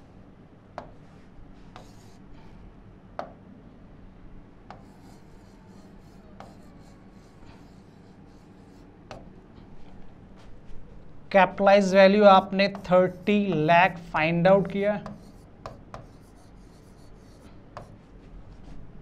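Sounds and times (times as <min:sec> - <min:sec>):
pen scratching on glass: 0:01.8 - 0:02.2, 0:04.7 - 0:09.2, 0:15.0 - 0:17.5.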